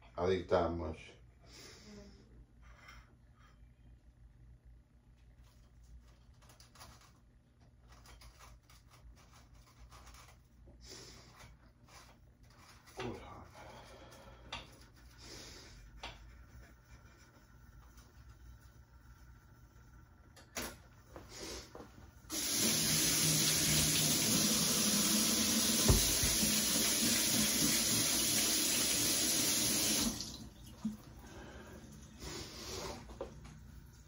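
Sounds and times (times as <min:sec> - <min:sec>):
faucet running water into sink: 0:22.3 - 0:31.2
short thump: 0:25.9 - 0:26.4.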